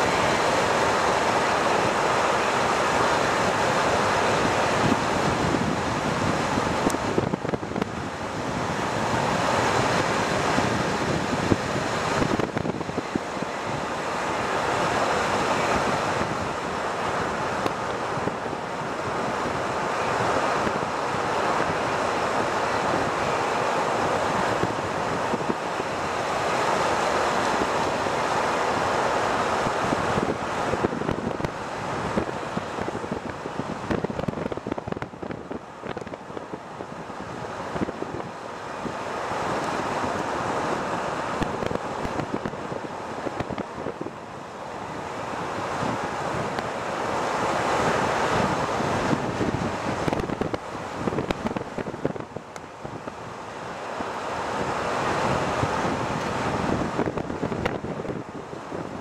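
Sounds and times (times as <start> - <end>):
crackly wind gusts: 0.0 - 59.0
wind rushing over microphone: 0.0 - 59.0.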